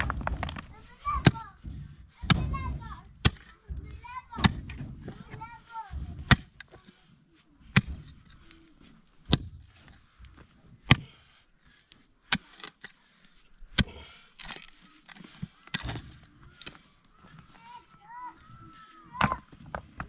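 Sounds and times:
mattock striking stony soil: 0.0s - 6.8s, 19.0s - 20.0s.

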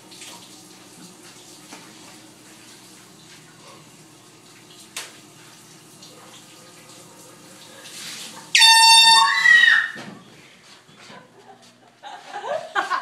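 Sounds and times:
shower water running: 0.0s - 10.8s
air horn blast: 8.6s - 9.9s.

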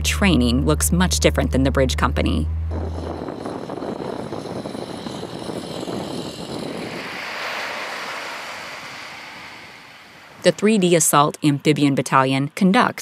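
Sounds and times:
vehicle engines droning: 0.0s - 11.0s
surf washing onto beach: 5.6s - 10.9s.

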